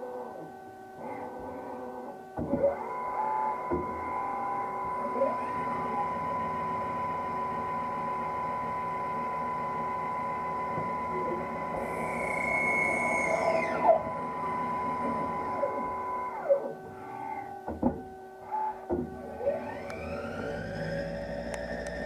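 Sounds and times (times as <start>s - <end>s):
lathe spindle whine: 0.0s - 22.0s
machining noise: 11.2s - 17.5s.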